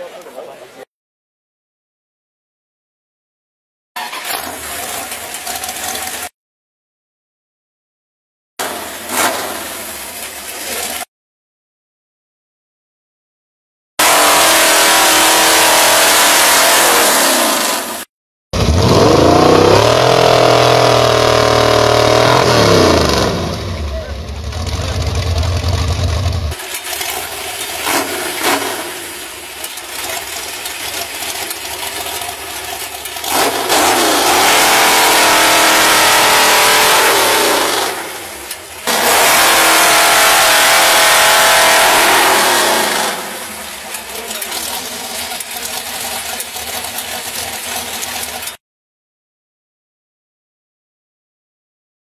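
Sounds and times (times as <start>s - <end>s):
engine driving chainsaw revving: 8.6s - 9.9s, 14.0s - 23.9s, 25.2s - 48.6s.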